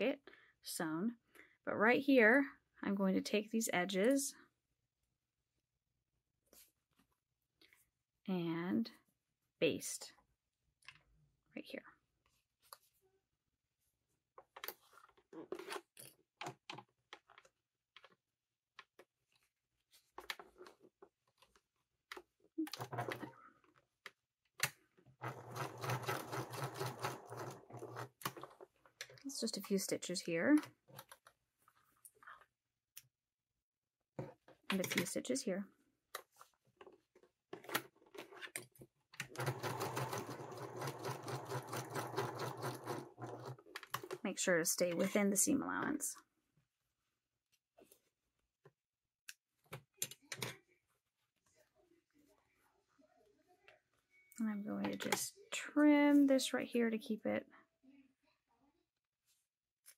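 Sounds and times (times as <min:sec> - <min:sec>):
sewing machine stitching: 0:22.7 - 0:23.3, 0:25.2 - 0:28.4, 0:39.2 - 0:44.2.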